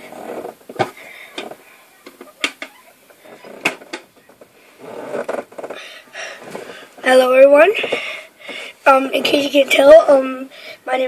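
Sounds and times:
soft rustling: 0.0s - 10.3s.

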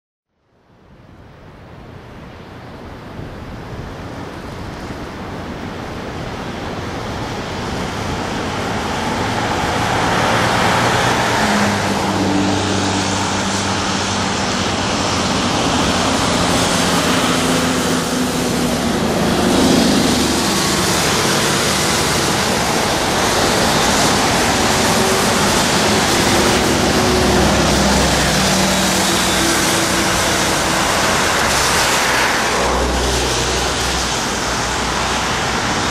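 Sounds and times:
low engine hum: 3.9s - 35.9s
passing vehicles roar: 3.9s - 35.9s.

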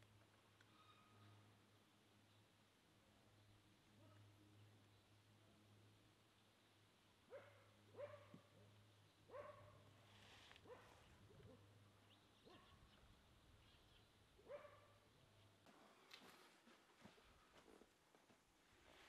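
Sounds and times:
faint dog barking: 7.3s - 10.0s, 10.6s - 11.8s, 12.4s - 13.0s, 14.4s - 15.0s.

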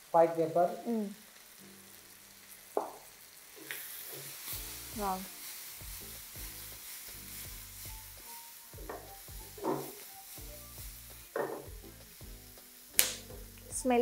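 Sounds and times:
food sizzling in a frying pan: 0.0s - 14.0s.

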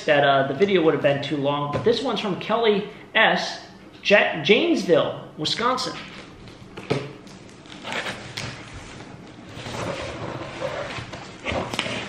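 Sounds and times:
cardboard rustling and scraping: 7.6s - 12.0s.

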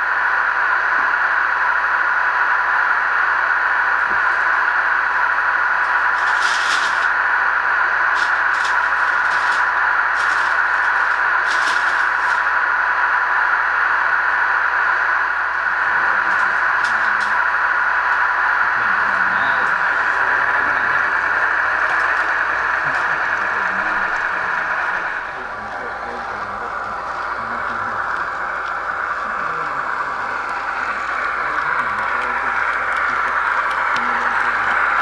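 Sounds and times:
steady hiss from small speaker: 14.0s - 35.0s.

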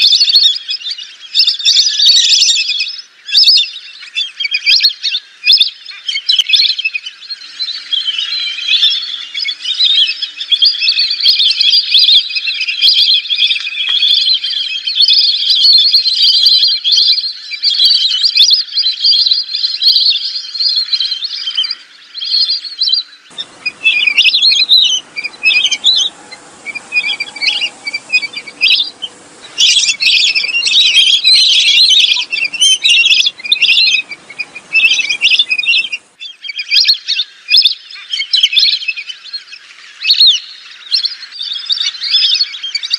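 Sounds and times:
ducks whistling chorus: 0.0s - 42.9s
faint hiss: 23.3s - 36.2s.

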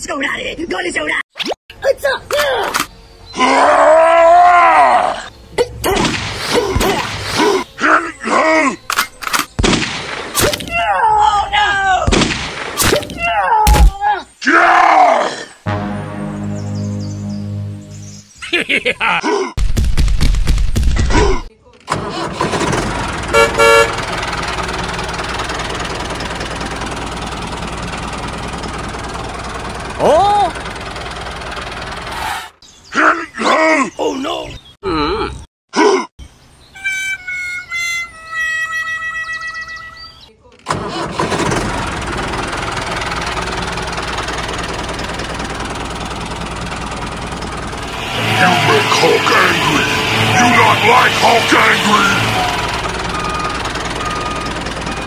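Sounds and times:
man crying out: 19.0s - 19.6s
engine running: 21.9s - 32.4s, 40.7s - 55.0s
vehicle horn toots: 23.3s - 24.1s, 47.8s - 54.4s.

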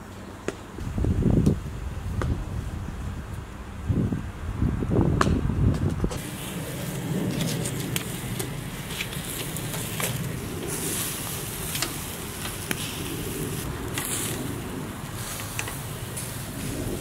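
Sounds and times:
low steady rumble: 0.8s - 17.0s
sharp crackles: 6.1s - 17.0s
meat sizzling over charcoal: 6.2s - 17.0s.

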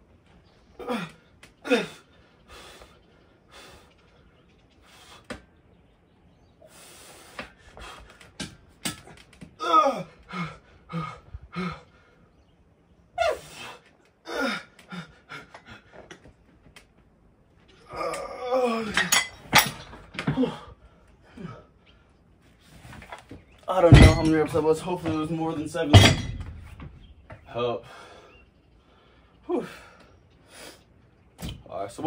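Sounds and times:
man breathing hard: 0.9s - 5.4s, 6.6s - 8.4s, 9.8s - 12.4s, 13.2s - 16.3s, 27.8s - 31.0s
man grunting under strain: 17.8s - 19.1s.

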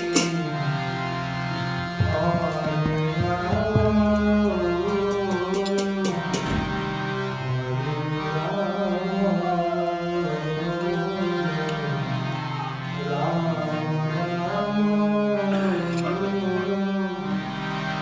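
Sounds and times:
sharp percussive strikes: 0.0s - 0.6s, 1.8s - 7.1s
harmonium chords: 0.0s - 18.0s
man singing a devotional chant: 2.0s - 6.3s, 7.5s - 12.0s, 13.0s - 17.4s.

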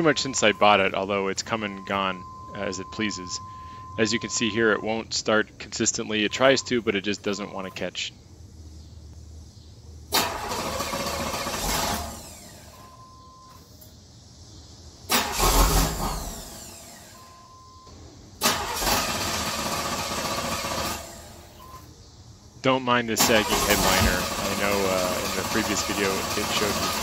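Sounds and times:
short electronic beep: 0.0s - 0.9s
car engine cranking: 10.1s - 12.8s, 15.1s - 17.1s, 18.4s - 21.6s, 23.1s - 27.0s.

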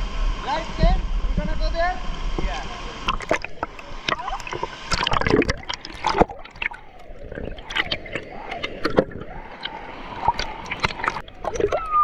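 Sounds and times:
water splashing and sloshing: 0.0s - 12.0s.

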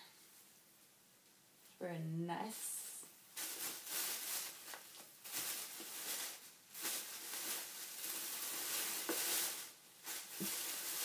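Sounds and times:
plastic bag rustling: 3.3s - 11.0s.

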